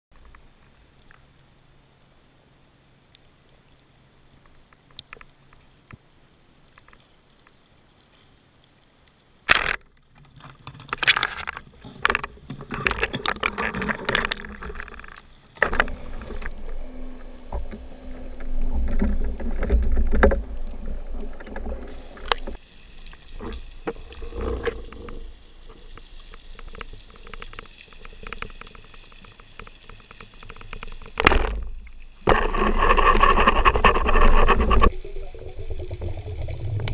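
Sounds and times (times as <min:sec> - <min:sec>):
faint underwater clicks: 0:00.1 - 0:36.9
churning water: 0:10.9 - 0:28.9
low rumbling: 0:13.4 - 0:22.6.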